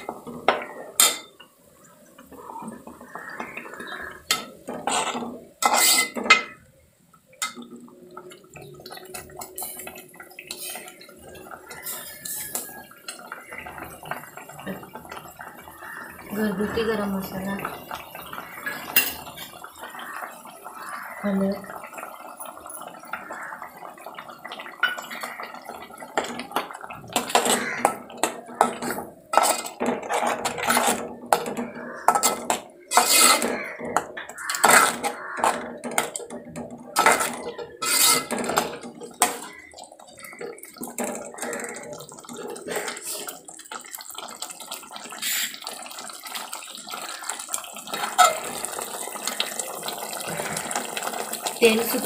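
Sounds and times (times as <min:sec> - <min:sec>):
ladle scraping metal pot: 0:02.3 - 0:06.6, 0:09.1 - 0:11.0, 0:11.6 - 0:13.8, 0:26.2 - 0:43.4, 0:47.9 - 0:48.9.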